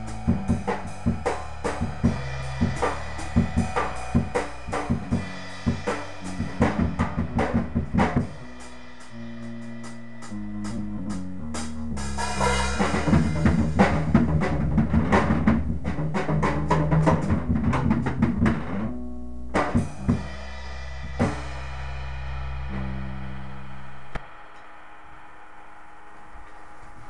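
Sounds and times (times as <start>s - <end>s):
cymbal crashes: 0.0s - 13.9s, 19.7s - 26.4s
drum kit playing: 0.0s - 27.0s
low bass notes: 0.0s - 27.0s.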